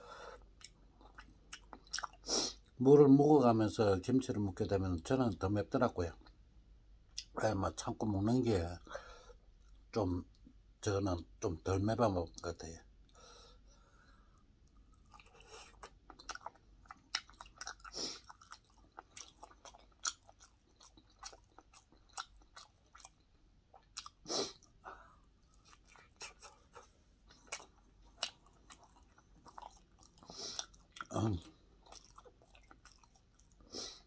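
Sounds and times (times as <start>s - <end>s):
man chewing food: 0.0s - 2.8s, 13.1s - 34.0s.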